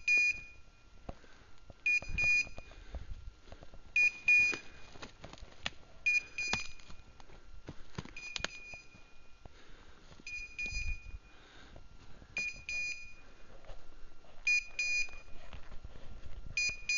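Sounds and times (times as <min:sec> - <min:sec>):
twigs snapping underfoot: 0:04.5 - 0:05.8
beeper collar short high beeps: 0:10.3 - 0:11.2.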